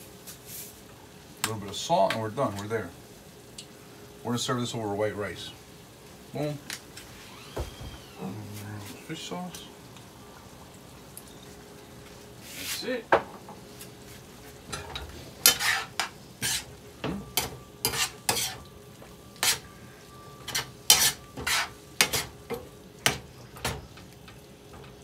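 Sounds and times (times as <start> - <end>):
food sizzling in a skillet: 0.0 - 25.0
metal spoon scraping a skillet: 14.7 - 18.7, 19.4 - 19.7, 20.4 - 22.4.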